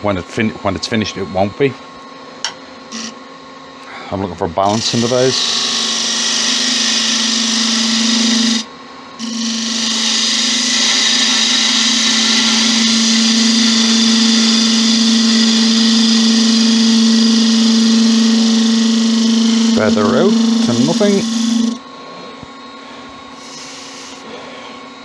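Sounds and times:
wood lathe humming: 0:02.9 - 0:03.2, 0:04.6 - 0:21.8, 0:23.3 - 0:24.4
turning tool hissing cut: 0:04.7 - 0:21.8, 0:23.3 - 0:24.4.

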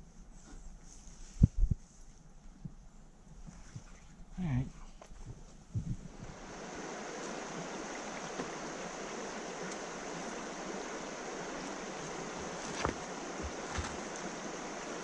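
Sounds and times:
river flowing over rocks: 0:06.3 - 0:15.0.

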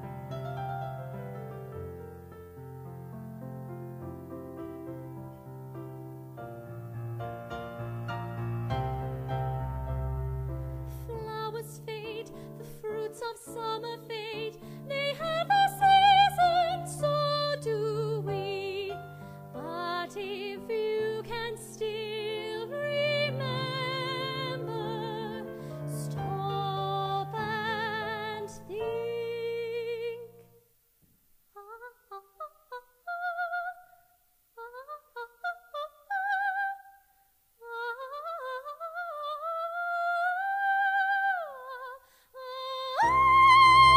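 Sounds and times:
woman singing operatically: 0:11.0 - 0:30.4, 0:31.6 - 0:34.0, 0:34.6 - 0:37.0, 0:37.6 - 0:43.9.

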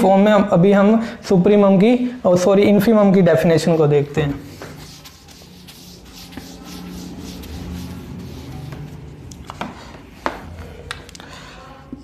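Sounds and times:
eraser rubbing whiteboard: 0:04.4 - 0:09.1.

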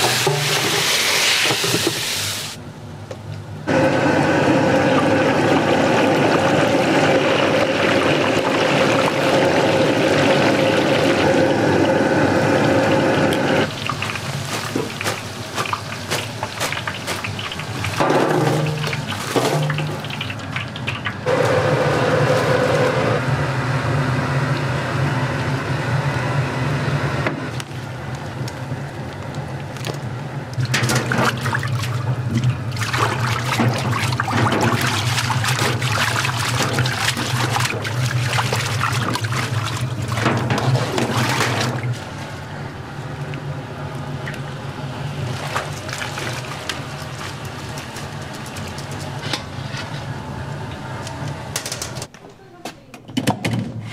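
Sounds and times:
tap water splashing: 0:13.7 - 0:21.2, 0:30.6 - 0:42.0.

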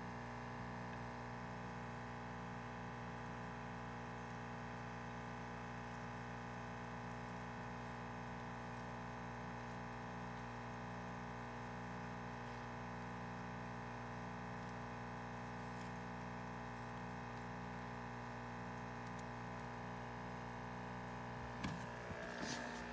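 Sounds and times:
steady multi-tone hum: 0:00.0 - 0:22.9.

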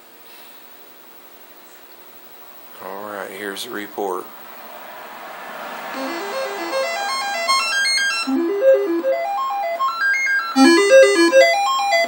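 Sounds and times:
short beeping notes rising in pitch: 0:05.9 - 0:12.0.

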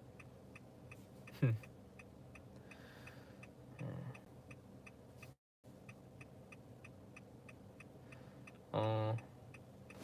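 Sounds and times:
car turn signal ticking: 0:00.0 - 0:10.0
man humming: 0:03.7 - 0:04.2, 0:08.7 - 0:09.3.

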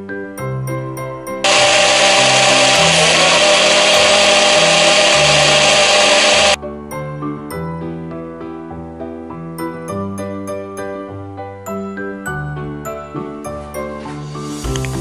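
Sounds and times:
blender grinding paste: 0:01.4 - 0:06.6.

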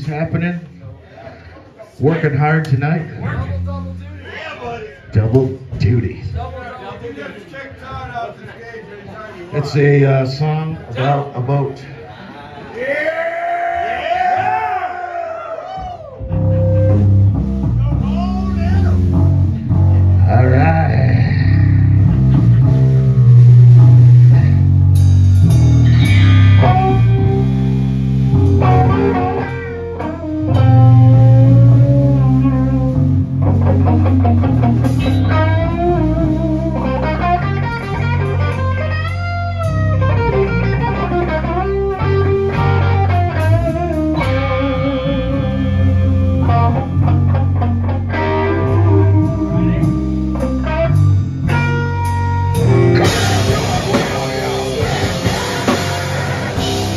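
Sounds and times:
drum kit: 0:15.7 - 0:56.9
electric bass riffing: 0:16.2 - 0:56.9
electric guitar riffing: 0:16.2 - 0:56.9.

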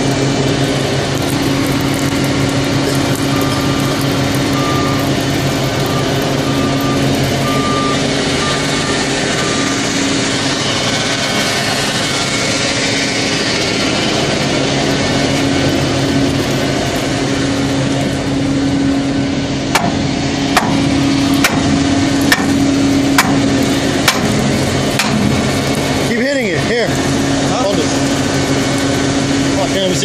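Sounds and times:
machinery engine hum: 0:00.0 - 0:30.0
sharp metal knocks: 0:19.7 - 0:25.4.

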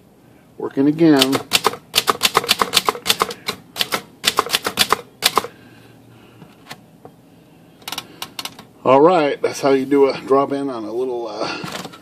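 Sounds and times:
typewriter typebar clacks: 0:01.2 - 0:05.5.

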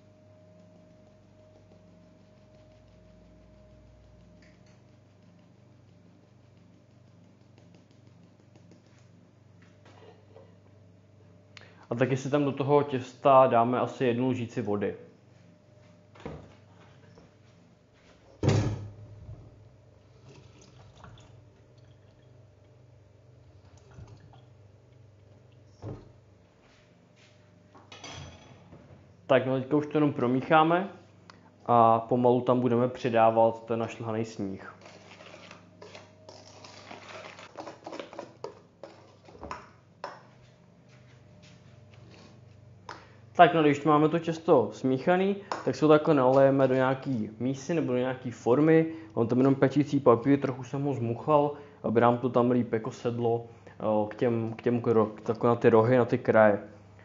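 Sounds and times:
faint running water: 0:20.1 - 0:22.8, 0:23.6 - 0:24.6
utensil scraping a metal bowl: 0:34.7 - 0:38.2.

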